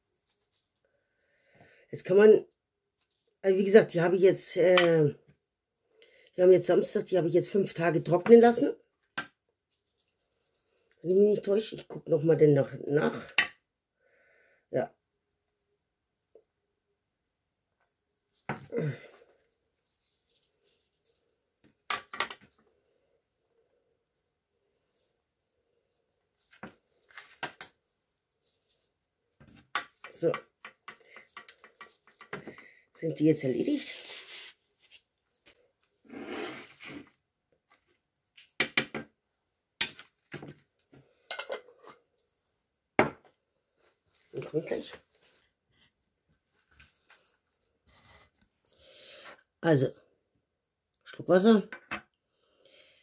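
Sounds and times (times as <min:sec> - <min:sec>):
paper rustle: 0:26.4 - 0:27.5, 0:33.8 - 0:35.6.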